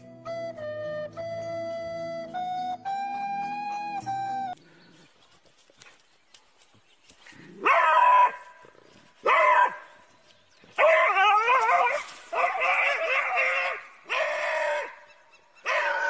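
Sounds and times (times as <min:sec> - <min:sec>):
dog barking and howling: 0:07.6 - 0:08.5, 0:09.2 - 0:09.8, 0:10.8 - 0:16.0.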